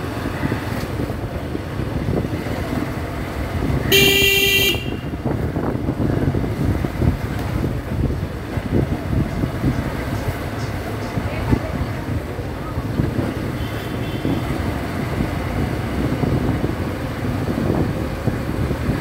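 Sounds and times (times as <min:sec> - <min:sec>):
motorcycle engine and wind rumble: 0:00.0 - 0:19.0
vehicle horn beep: 0:03.9 - 0:05.2, 0:13.6 - 0:14.5.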